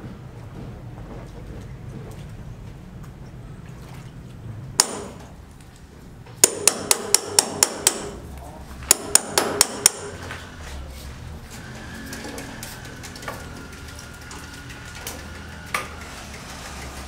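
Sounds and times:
hammer on chisel into concrete: 4.8s - 5.2s, 6.4s - 8.2s, 8.9s - 10.2s.

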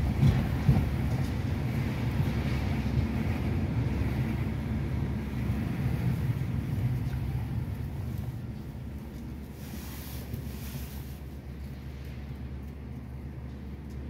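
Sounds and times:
car engine and road rumble: 0.0s - 14.0s.

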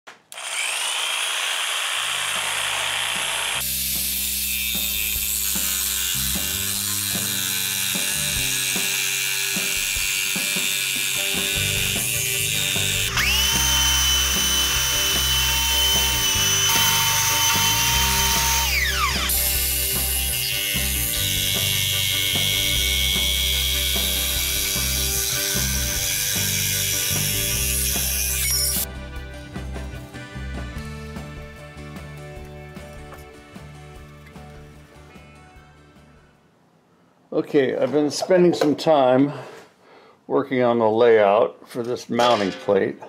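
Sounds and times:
electric jigsaw cutting metal: 0.1s - 28.9s
background music: 3.6s - 36.6s.

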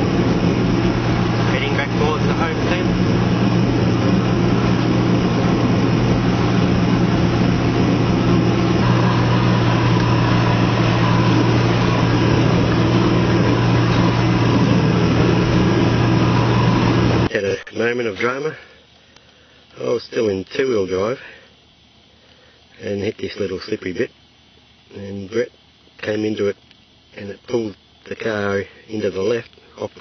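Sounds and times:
vehicle engine drone inside cabin: 0.0s - 17.3s
faint high whine: 0.0s - 30.0s.

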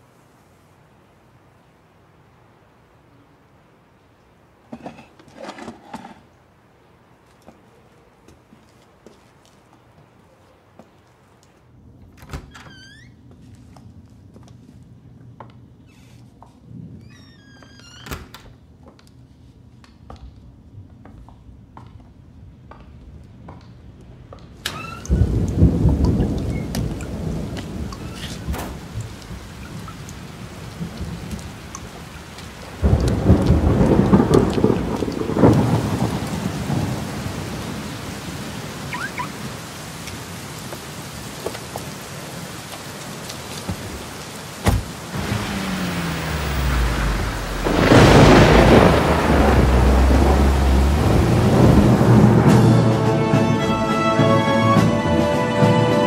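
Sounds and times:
quiet footsteps: 7.2s - 11.7s
heavy rain: 24.6s - 56.0s
thunder rolling: 24.8s - 39.2s, 44.6s - 55.2s.

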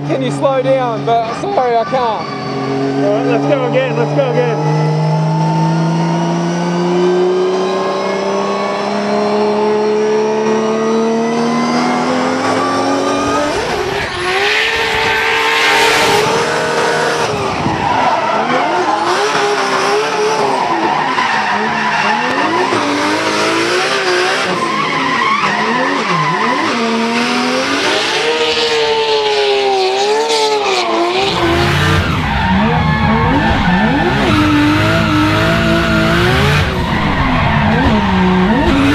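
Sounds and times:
car engine revving: 0.0s - 38.9s
tyres squealing: 13.7s - 27.0s, 30.6s - 38.9s.

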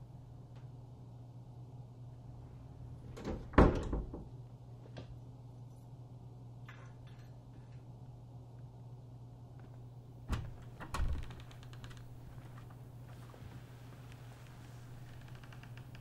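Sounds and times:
steady low hum: 0.0s - 16.0s
door shutting: 10.3s - 12.7s.

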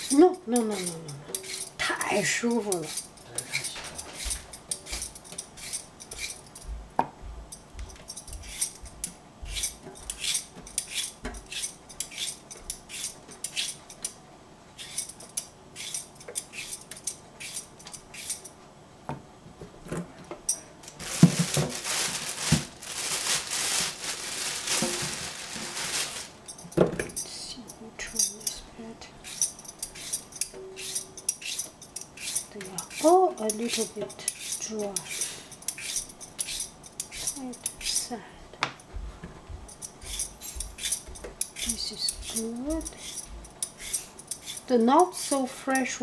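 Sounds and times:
peeler scraping cucumber: 0.0s - 6.5s, 8.2s - 8.8s, 9.5s - 13.8s, 14.8s - 18.5s, 29.2s - 38.1s, 39.8s - 46.0s.

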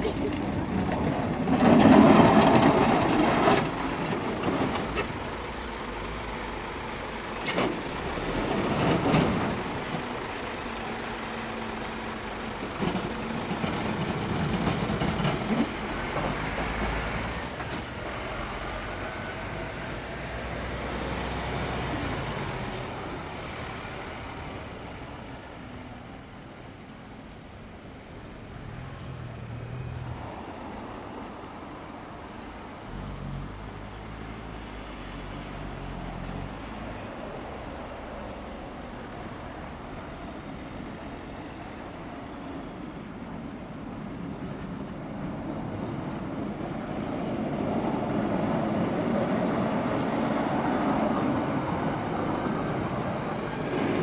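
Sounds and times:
plow blade pushing snow: 0.0s - 26.2s
truck diesel engines: 0.0s - 54.0s.

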